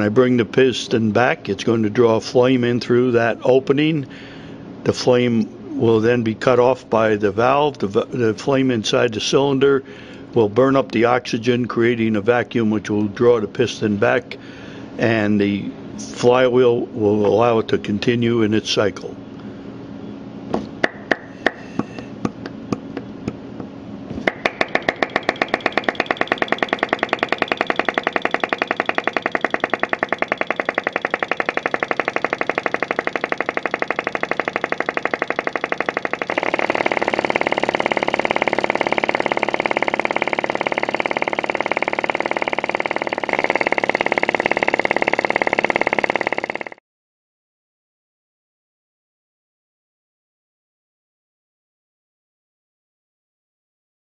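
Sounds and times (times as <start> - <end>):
engine clicking: 24.3 - 46.8.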